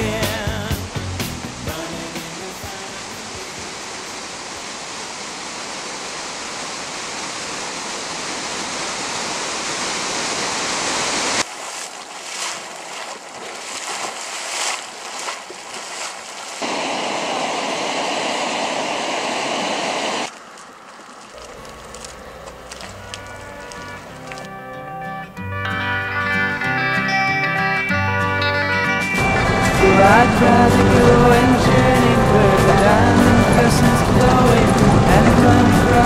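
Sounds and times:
waterfall rushing: 0:00.0 - 0:11.6, 0:13.9 - 0:20.4, 0:29.2 - 0:36.0.

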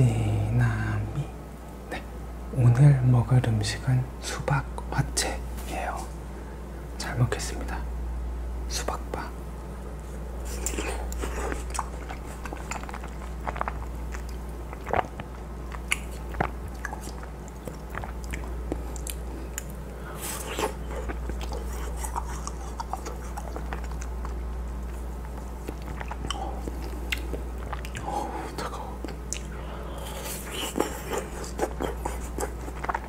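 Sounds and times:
biting and chewing ice pop: 0:10.5 - 0:28.1
wet mouth clicks: 0:10.6 - 0:24.4, 0:25.2 - 0:33.0.

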